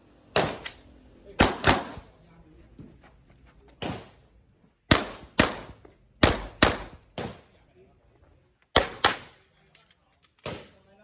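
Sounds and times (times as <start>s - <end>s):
carbine gunshots: 1.4s - 2.1s, 4.9s - 7.5s, 8.7s - 9.4s.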